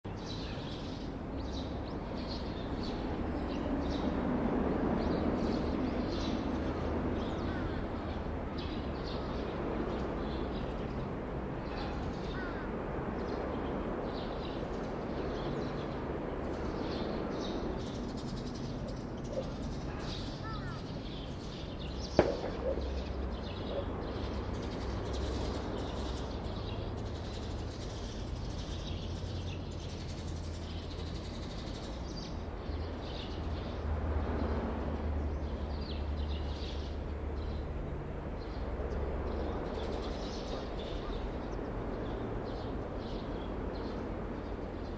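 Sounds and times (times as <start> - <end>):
birds chirping: 5.0 - 33.8, 38.4 - 44.9.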